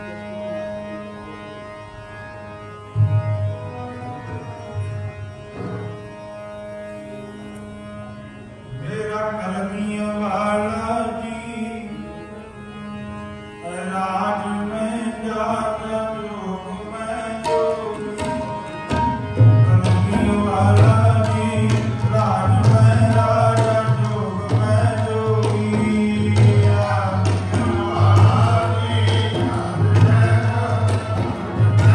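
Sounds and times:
harmonium drone and melody: 0.0 - 31.9
tabla strokes: 17.4 - 31.9.

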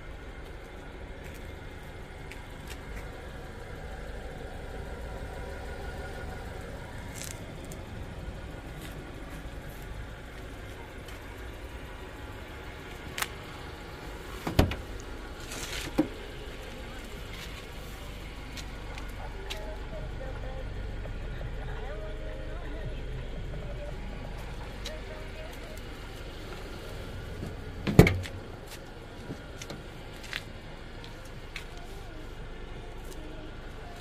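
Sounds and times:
car door clacking open: 14.4 - 14.9, 27.4 - 28.4
car door latch clicking: 27.9 - 28.4.

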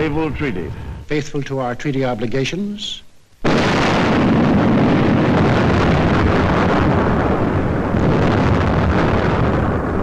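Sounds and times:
long low explosion: 3.4 - 10.0.

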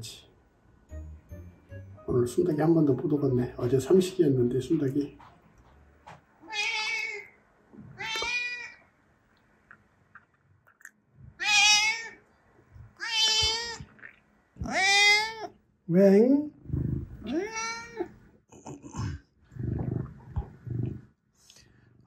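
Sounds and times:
cat meowing: 6.4 - 7.3, 8.0 - 8.8, 11.4 - 12.2, 13.0 - 13.9, 14.6 - 15.5, 17.2 - 18.1.

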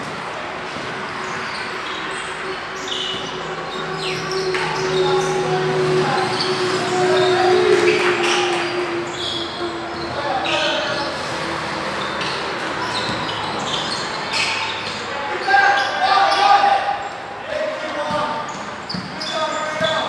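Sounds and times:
basketball bouncing: 0.0 - 4.8, 12.2 - 15.0, 18.0 - 20.0
players calling out: 0.1 - 20.0
shoe squeaks on court: 0.7 - 5.5, 6.1 - 11.3, 12.0 - 20.0.

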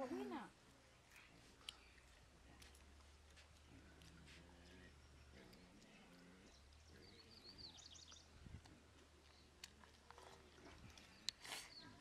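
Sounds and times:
bird chirp: 4.6 - 8.5, 10.9 - 12.0.

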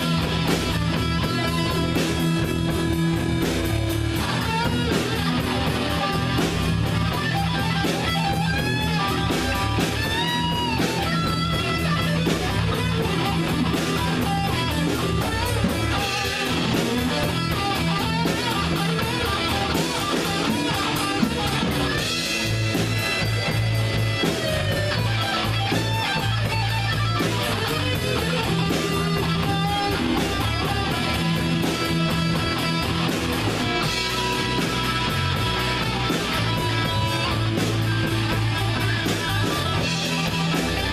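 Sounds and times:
bass: 0.0 - 40.9
electric guitar lead: 0.0 - 40.9
steady drum beat: 0.0 - 40.9.

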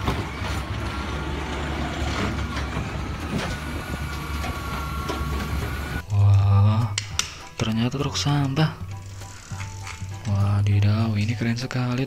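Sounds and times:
garbage truck diesel engine running: 0.0 - 6.0.

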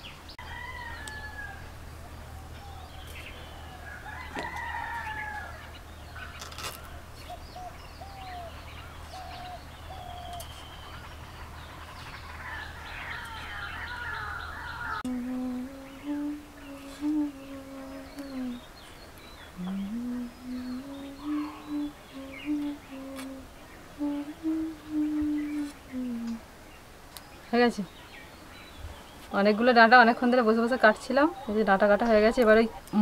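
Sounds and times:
steady low hum: 0.0 - 29.3
birds chirping: 0.0 - 33.0
rooster crowing: 0.4 - 7.1, 12.0 - 15.1.

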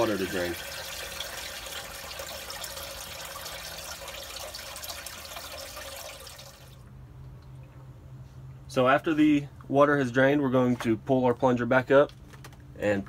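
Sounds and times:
water trickling through a drain: 0.0 - 7.6.

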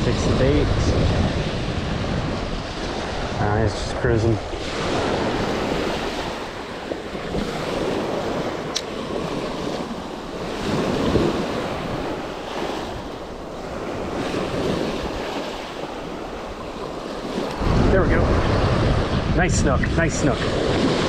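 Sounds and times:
small waves washing over sand: 0.0 - 21.0
wind buffeting microphone: 0.0 - 21.0.

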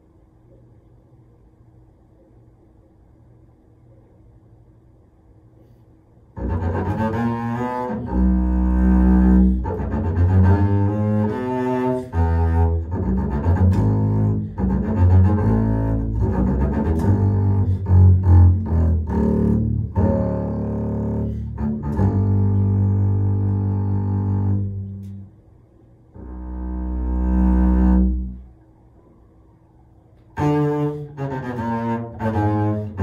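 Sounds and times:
bowed double bass: 6.3 - 28.8, 30.3 - 33.0.

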